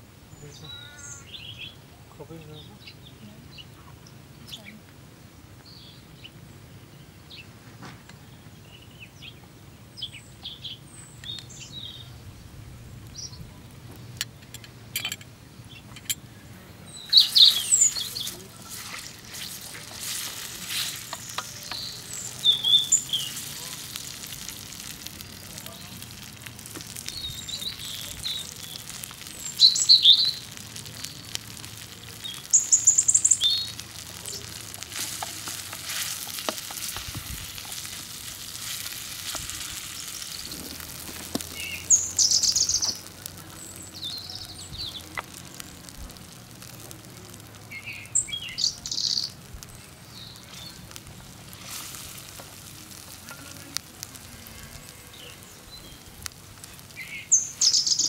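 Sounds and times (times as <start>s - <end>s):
birds chirping: 0.3s - 58.0s
sauce sizzling in a pan: 17.0s - 58.0s
wooden spoon stirring: 17.2s - 47.5s, 50.5s - 56.9s.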